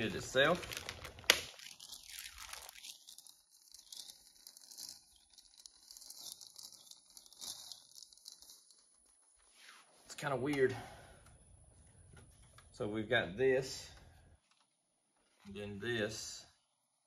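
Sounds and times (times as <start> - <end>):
plastic bag crinkling and tearing: 0.0 - 9.4.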